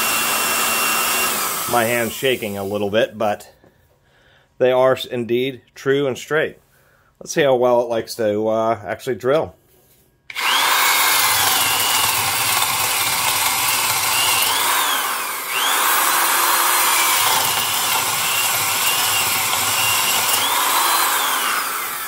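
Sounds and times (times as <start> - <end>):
drill boring through wood: 0.0 - 2.8, 10.3 - 22.0.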